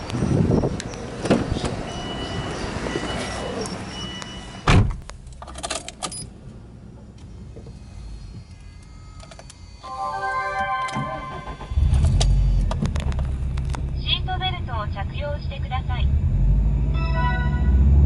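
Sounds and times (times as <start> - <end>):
car door shutting with thud: 4.6 - 5.0.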